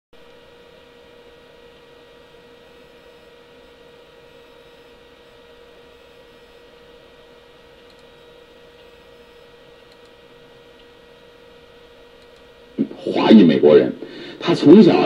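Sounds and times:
electrical hum with hiss: 0:00.2 - 0:15.0
faint clicks: 0:07.8 - 0:08.2, 0:09.8 - 0:10.2, 0:12.2 - 0:12.5.

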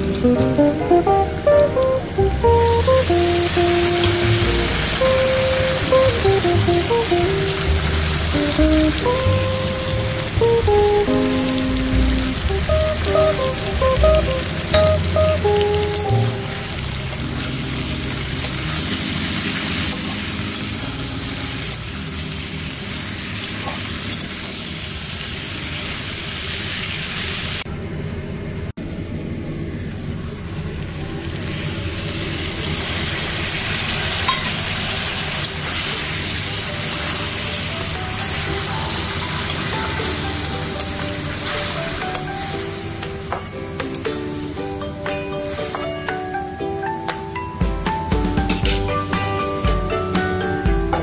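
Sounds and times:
soft background music: 0:00.0 - 0:24.2, 0:35.7 - 0:51.0
food sizzling in a pan: 0:00.0 - 0:27.6, 0:30.8 - 0:46.3.

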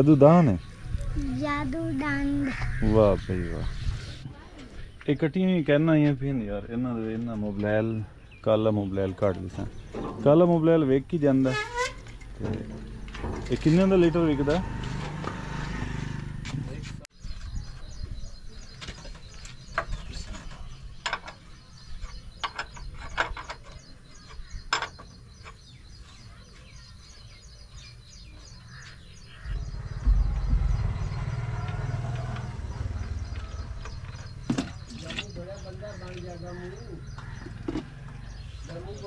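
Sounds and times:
faint bird chirping: 0:16.7 - 0:39.0
low rumble: 0:29.3 - 0:34.5.

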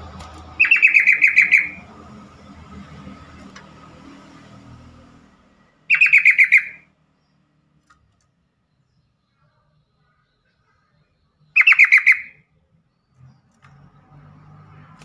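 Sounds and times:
bird calling sharp repeated notes: 0:00.6 - 0:01.9, 0:05.9 - 0:06.9, 0:11.5 - 0:12.5.

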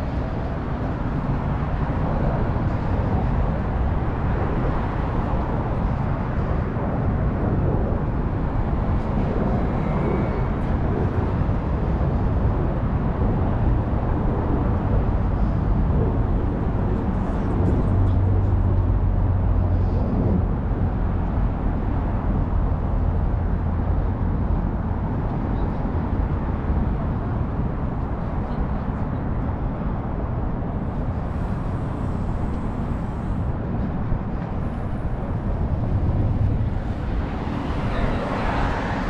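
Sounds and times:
low engine rumble: 0:00.0 - 0:39.0
cars driving past: 0:34.5 - 0:39.0.

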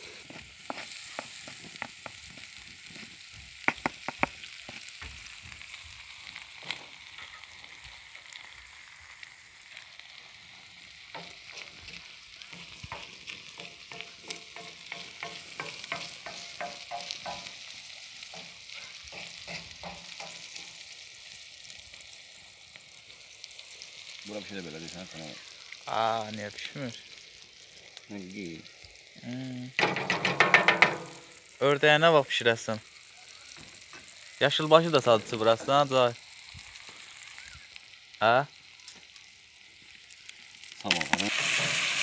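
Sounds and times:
food sizzling in a pan: 0:00.0 - 0:42.0
wooden spoon stirring and scraping: 0:00.1 - 0:03.1, 0:11.1 - 0:17.4.

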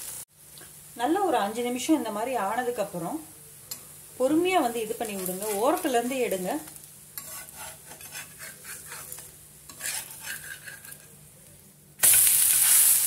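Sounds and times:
loud steady sizzle: 0:00.0 - 0:13.0
metal spatula scraping griddle: 0:07.2 - 0:11.2.

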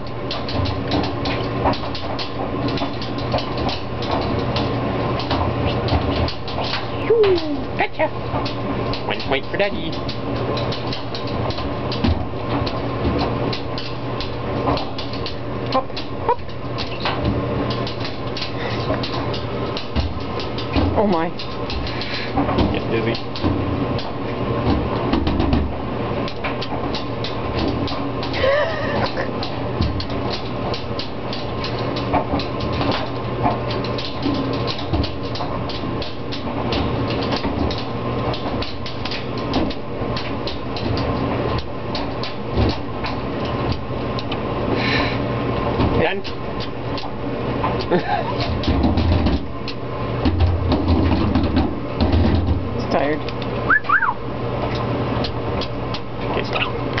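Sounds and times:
sharp clicks and knocks: 0:00.0 - 0:44.5, 0:45.6 - 0:54.1
laundry machine hum: 0:00.0 - 0:57.0
parrot feet tapping and scrabbling: 0:00.0 - 0:57.0
short wavering chirp: 0:53.7 - 0:54.2.

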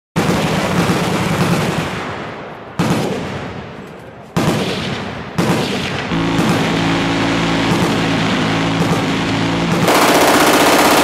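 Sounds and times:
minigun firing bursts: 0:04.4 - 0:11.0.

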